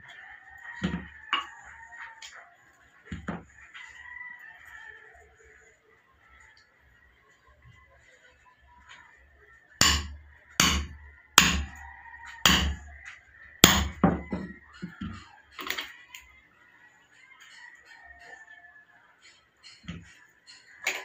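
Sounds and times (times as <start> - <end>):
hammer striking steel: 9.8 - 11.8, 12.4 - 12.9, 13.6 - 14.1.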